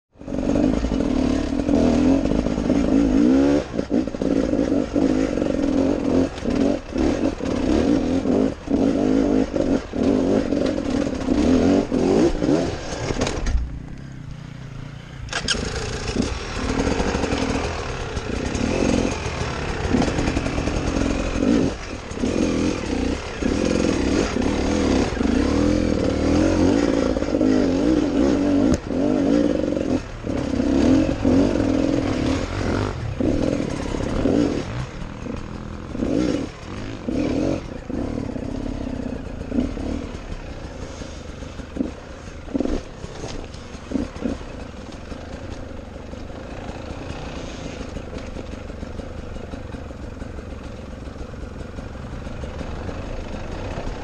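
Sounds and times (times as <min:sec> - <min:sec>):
dirt bike engine revving: 0:00.2 - 0:54.0.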